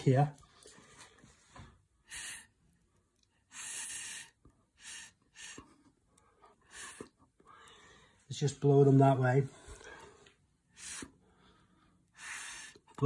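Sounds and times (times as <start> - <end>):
breath puffs through a straw: 2.0 - 2.6, 3.4 - 5.9, 6.6 - 7.3, 10.7 - 13.0.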